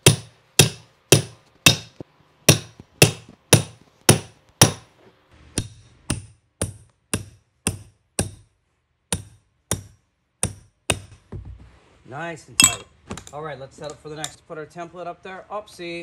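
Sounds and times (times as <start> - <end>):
hammer striking metal tool: 0.0 - 4.9, 5.6 - 8.5, 9.1 - 11.2.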